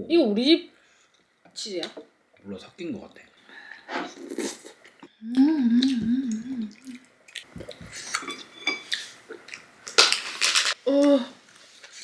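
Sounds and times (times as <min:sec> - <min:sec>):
person humming while eating: 0:05.2 - 0:07.1.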